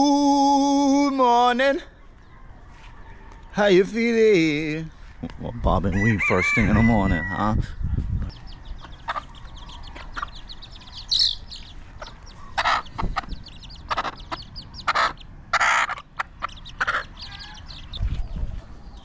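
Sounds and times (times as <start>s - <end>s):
chickens clucking: 4.6s - 19.0s.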